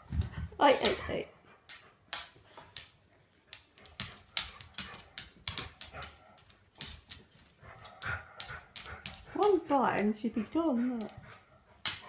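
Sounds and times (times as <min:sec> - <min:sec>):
dog claws tapping wooden floor: 0:01.6 - 0:09.8, 0:11.0 - 0:12.0.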